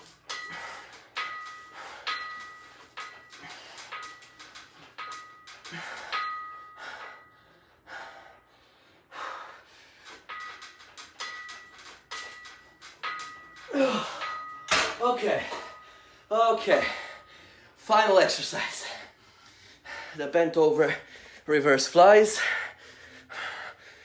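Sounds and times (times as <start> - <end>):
man breathing hard: 0.0 - 10.6, 15.3 - 17.8, 18.5 - 21.5, 22.2 - 24.0
man grunting: 13.7 - 14.2.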